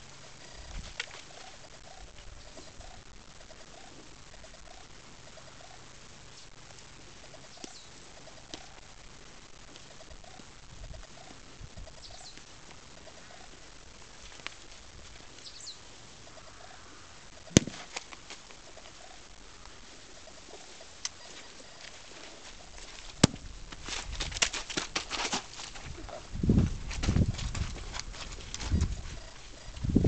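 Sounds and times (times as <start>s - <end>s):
faint bird calls: 0.0s - 9.0s, 9.6s - 23.4s, 28.4s - 30.0s
hooves and footsteps on wood chips: 11.0s - 30.0s.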